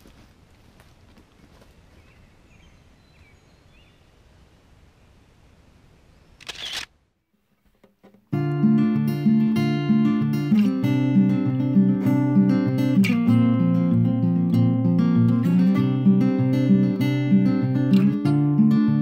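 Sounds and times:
camera shutter click: 6.4 - 6.9
strummed acoustic guitar: 7.9 - 19.0.

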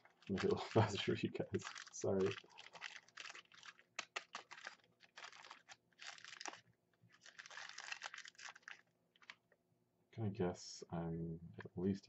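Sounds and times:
plastic bag crinkling: 0.0 - 9.4.

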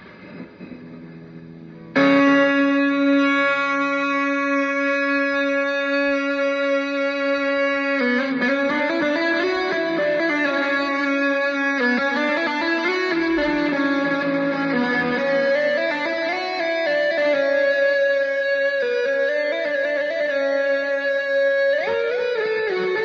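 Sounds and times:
steady held drone: 0.0 - 5.7
bagpipe-like electric guitar melody: 0.0 - 23.0.

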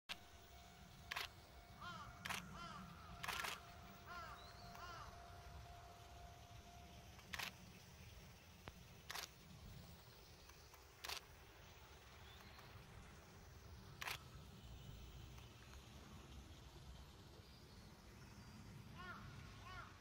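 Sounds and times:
camera shutter clicks: 1.1 - 1.4, 2.2 - 2.6, 3.2 - 3.8, 7.2 - 7.6, 9.0 - 9.4, 11.0 - 11.3, 14.0 - 14.2
bird calls: 1.1 - 5.7.

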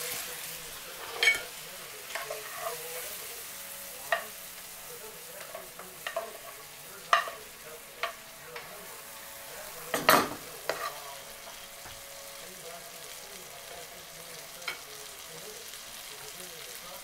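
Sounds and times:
chicken sizzling in a frying pan: 0.0 - 17.0
utensil clacking and scraping pan: 0.9 - 3.3, 5.4 - 8.7, 9.8 - 12.0.

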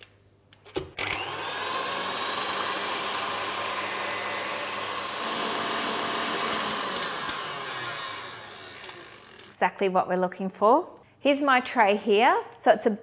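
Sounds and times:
stand mixer motor whine: 1.0 - 9.5
whisk whirring in bowl: 1.0 - 9.5.

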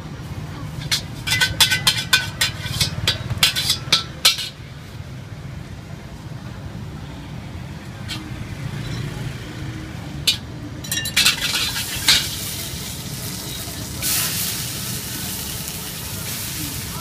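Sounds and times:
metal ladle scraping in wok: 0.8 - 4.6, 10.3 - 15.4
garlic sizzling in hot oil: 11.2 - 17.0.

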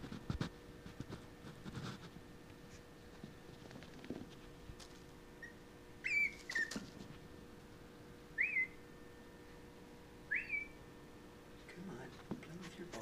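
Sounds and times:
dog whining: 5.4 - 6.9.

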